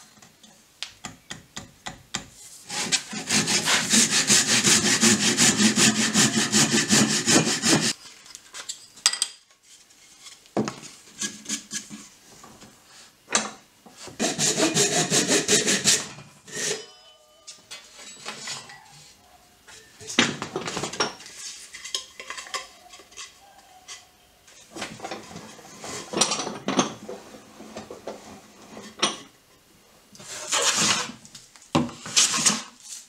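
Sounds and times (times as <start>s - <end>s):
hand saw rasping through wood: 2.7s - 8.0s, 14.2s - 16.1s.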